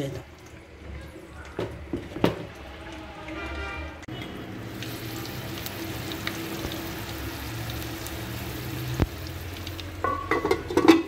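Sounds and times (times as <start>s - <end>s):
peppers sizzling in hot oil: 4.1s - 11.0s.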